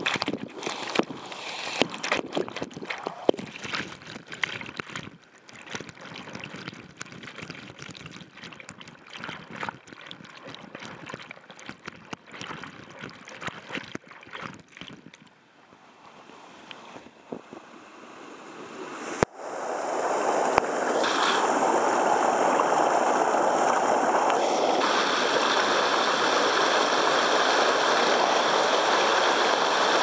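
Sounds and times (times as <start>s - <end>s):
water spattering on microphone: 0.0s - 15.3s
rushing waterfall water: 17.6s - 30.0s.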